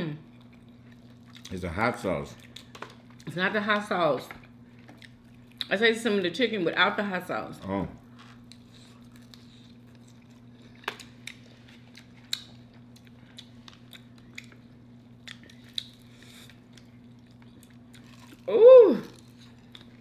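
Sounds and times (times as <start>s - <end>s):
steady low hum: 0.0s - 20.0s
chewing crunches: 0.2s - 3.3s, 8.1s - 18.5s, 19.1s - 20.0s.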